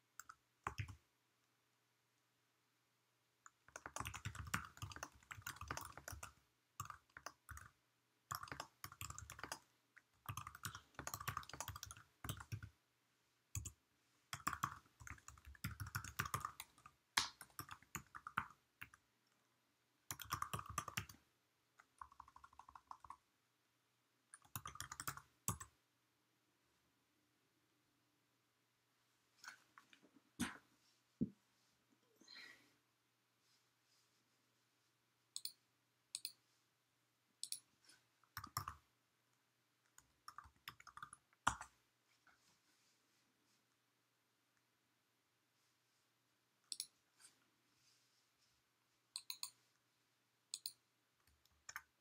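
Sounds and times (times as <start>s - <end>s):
typing on computer keyboard: 0.2s - 1.0s, 3.5s - 12.7s, 13.6s - 19.0s, 20.1s - 21.2s, 21.8s - 23.2s, 24.4s - 25.7s, 38.4s - 38.8s, 39.9s - 41.7s, 49.2s - 49.6s.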